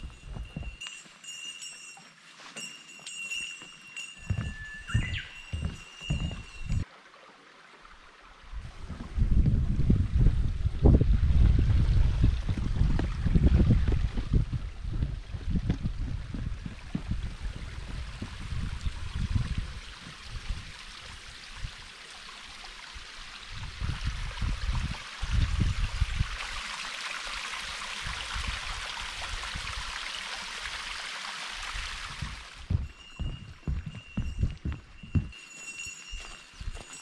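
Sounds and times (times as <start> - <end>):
stream running: 0.0 - 37.0
wind rumble on microphone: 8.4 - 21.8, 23.5 - 26.6, 28.0 - 30.0, 31.8 - 35.4.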